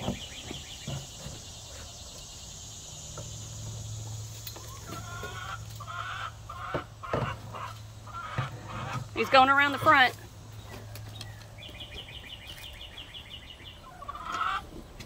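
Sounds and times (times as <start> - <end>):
hens clucking: 3.2 - 12.2, 13.5 - 15.0.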